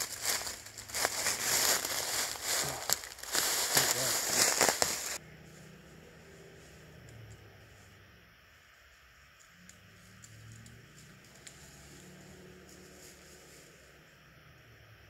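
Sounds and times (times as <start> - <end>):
footsteps crunching dry leaves: 0.0 - 5.2.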